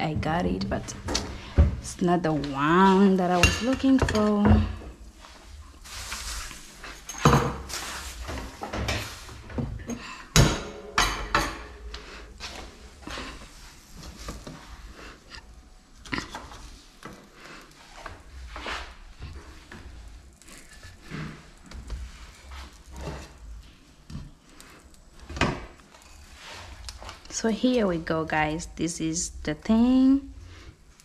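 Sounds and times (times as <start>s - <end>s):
spatula scraping: 17.6s - 23.5s, 25.9s - 27.2s.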